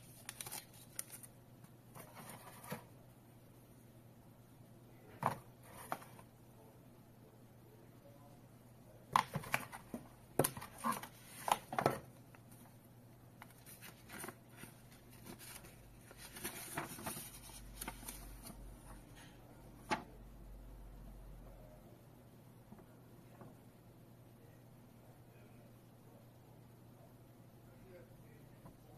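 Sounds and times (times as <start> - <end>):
paper leaflet rustling: 0.0 - 1.3, 13.4 - 18.6.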